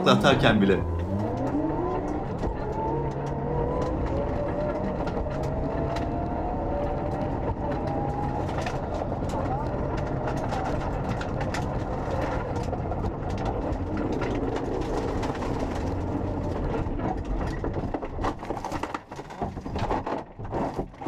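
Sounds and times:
car engine running hard: 0:00.0 - 0:18.1.

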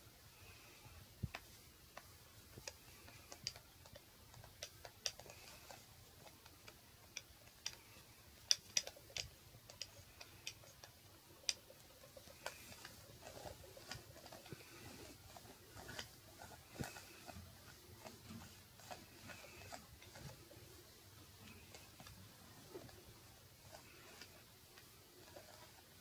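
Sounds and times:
lint roller crackling ticks: 0:00.4 - 0:26.0.

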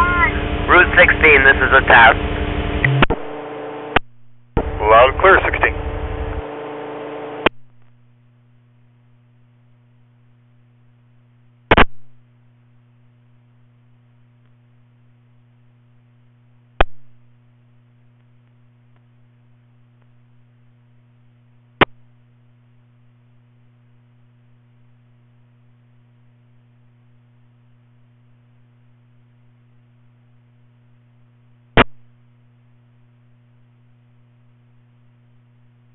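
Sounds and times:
radio low hum: 0:00.0 - 0:35.9.

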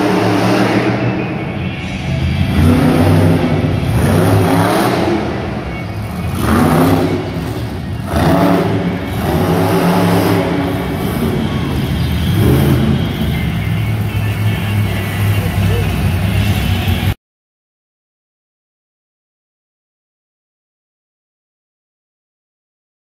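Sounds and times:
truck engine revving: 0:00.0 - 0:17.2.

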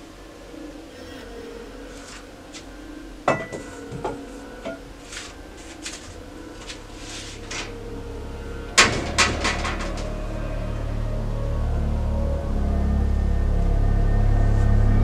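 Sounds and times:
low drone: 0:00.0 - 0:15.0
rustles of movement: 0:00.2 - 0:08.0.

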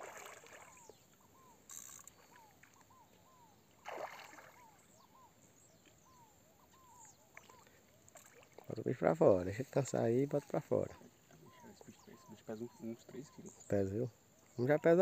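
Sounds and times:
fish splashing at water surface: 0:00.0 - 0:00.9, 0:03.8 - 0:04.8.

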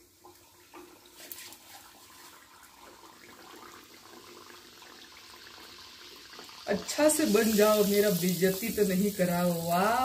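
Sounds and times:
dough frying in hot oil: 0:00.0 - 0:10.0.

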